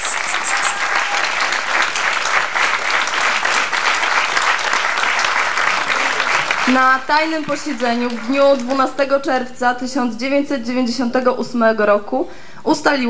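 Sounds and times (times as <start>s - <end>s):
audience applauding: 0.0s - 9.0s.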